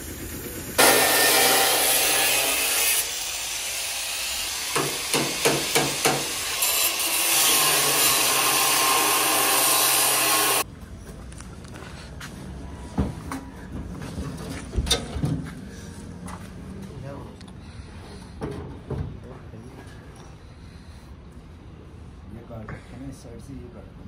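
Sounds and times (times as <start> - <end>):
angle grinder cutting steel: 0.7 - 10.6.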